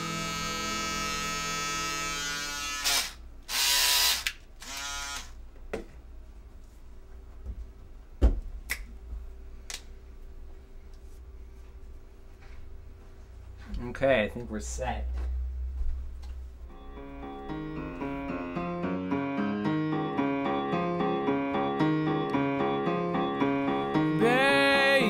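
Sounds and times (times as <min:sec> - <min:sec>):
electric trimmer buzzing: 0:00.0 - 0:05.4
held musical chord: 0:16.6 - 0:25.0.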